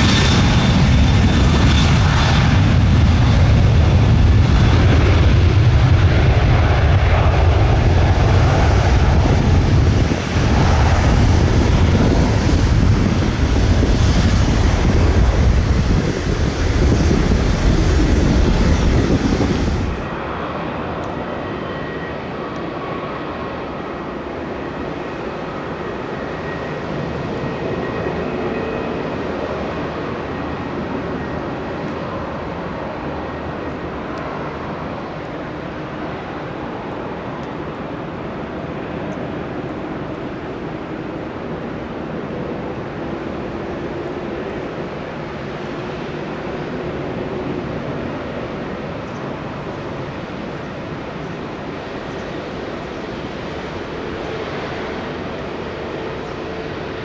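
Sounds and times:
jet engines rumbling: 0.0s - 57.0s
wind buffeting microphone: 0.0s - 57.0s.

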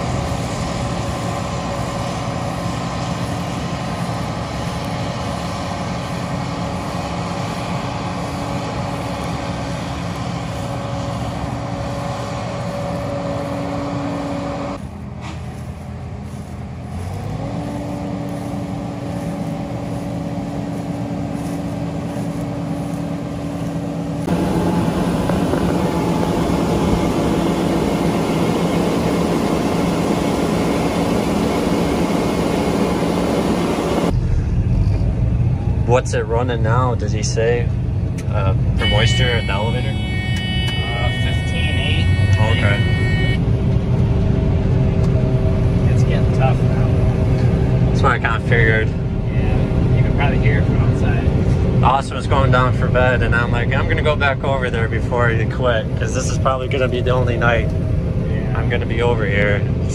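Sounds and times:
combine harvester engine hum: 0.0s - 59.9s.

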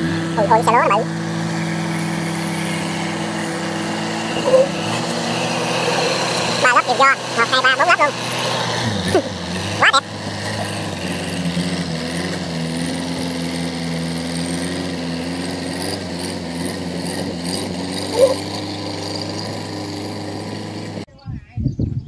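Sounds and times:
diesel engine running: 0.0s - 21.1s
brief high-pitched sound: 4.4s - 4.8s.

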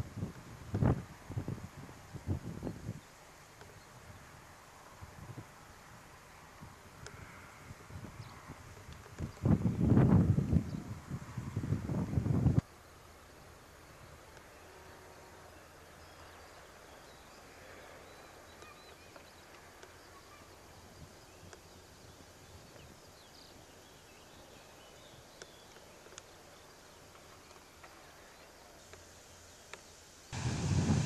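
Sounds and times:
low steady hiss: 0.0s - 31.0s
faint clicks: 7.0s - 9.6s, 18.5s - 20.7s, 21.4s - 21.8s, 25.2s - 30.0s
faint high chirps: 14.5s - 21.8s.

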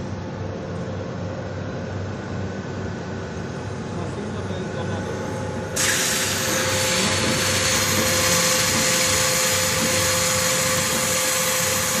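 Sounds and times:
cutting machine hiss: 5.8s - 12.0s.

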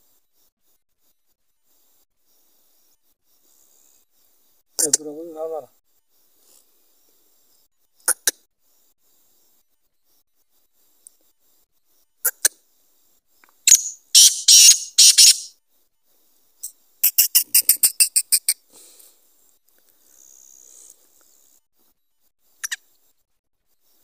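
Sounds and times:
bird calling short notes: 13.7s - 15.5s.

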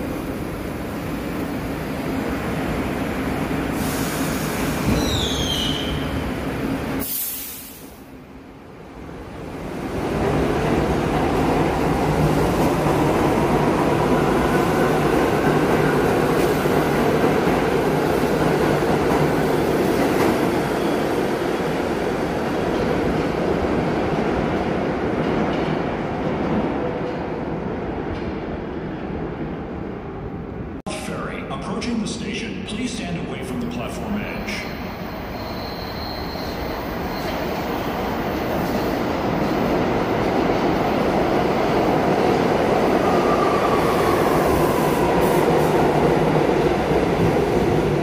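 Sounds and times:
subway train rumble: 0.0s - 48.0s
air hiss: 3.7s - 5.3s, 7.0s - 8.1s.

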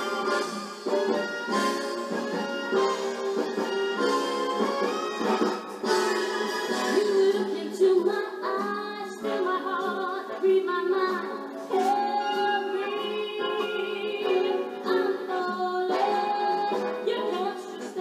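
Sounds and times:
instrumental accompaniment: 0.0s - 18.0s
person singing with vibrato: 6.8s - 18.0s.

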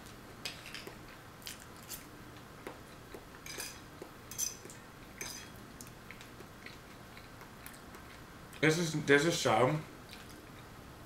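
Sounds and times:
fork clinking on ceramic plate: 3.5s - 5.6s.

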